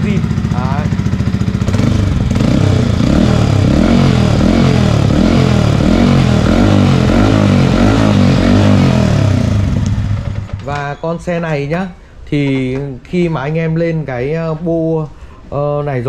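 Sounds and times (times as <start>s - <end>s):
motorcycle engine revving: 0.0s - 10.8s.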